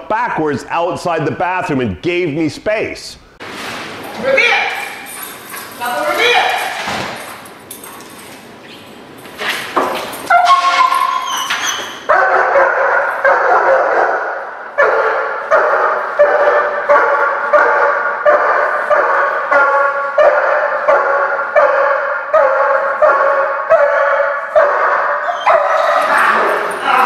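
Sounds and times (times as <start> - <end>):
dog barking: 12.0 - 26.8.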